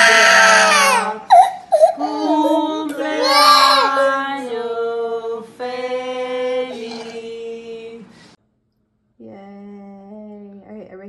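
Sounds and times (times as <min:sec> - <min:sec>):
voices singing long notes: 0:02.0 - 0:07.8
toddler crying: 0:03.2 - 0:03.9.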